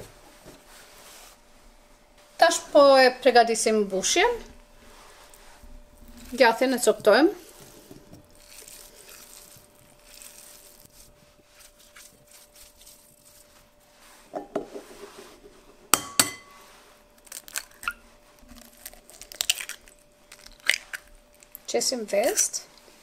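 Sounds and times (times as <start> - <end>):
cheese crumbling by hand: 5.9 - 13.6, 17.1 - 22.6
eggs cracking against glass bowl: 17.2 - 21.6.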